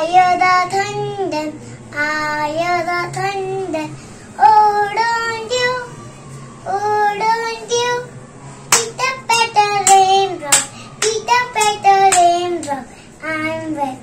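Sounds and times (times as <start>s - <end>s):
child singing: 0.0s - 6.0s, 6.6s - 8.1s, 8.7s - 14.0s
hand claps: 8.7s - 9.0s, 9.8s - 12.8s.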